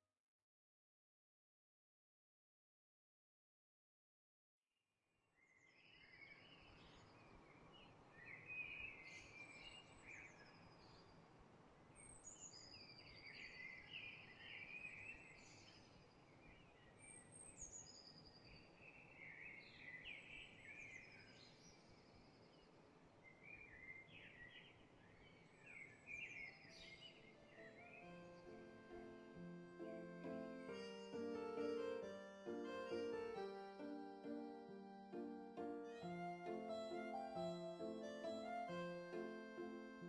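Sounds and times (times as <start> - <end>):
birds chirping and trilling: 12.0 - 35.8.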